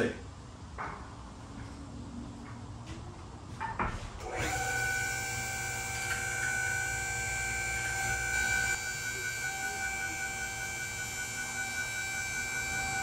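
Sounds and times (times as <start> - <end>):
pump motor whining: 4.2 - 13.0.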